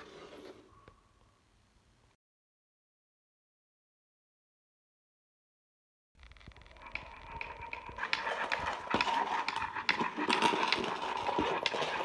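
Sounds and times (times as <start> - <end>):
push toy wheels rattling on floor: 6.4 - 12.0.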